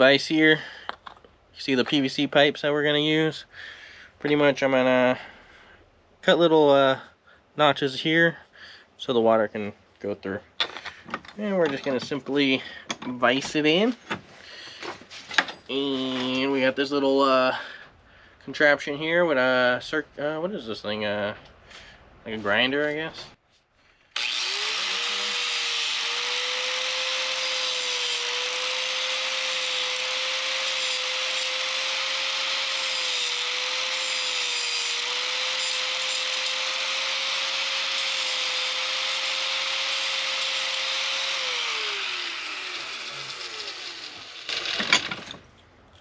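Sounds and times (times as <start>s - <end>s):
angle grinder cutting pipe: 24.2s - 45.4s
grinder winding down: 24.2s - 45.4s.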